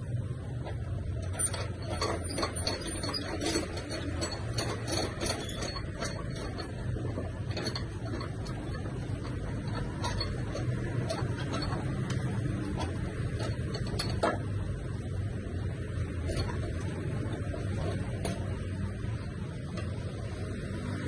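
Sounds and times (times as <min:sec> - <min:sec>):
clicks and knocks of metal and wood: 0:00.1 - 0:21.0.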